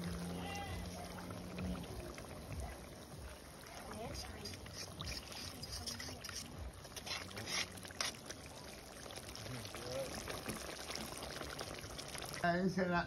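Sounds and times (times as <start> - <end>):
faint voices: 0.0 - 12.0
pot boiling and bubbling: 0.0 - 13.0
stirring clinks and scrapes: 4.3 - 8.3.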